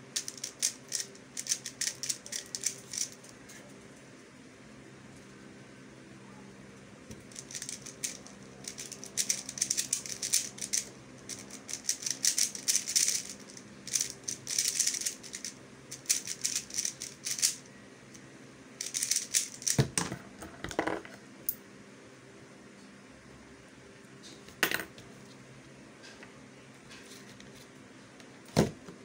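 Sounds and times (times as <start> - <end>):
speed cube clicking: 0.2 - 3.2, 7.4 - 17.6, 18.8 - 19.8.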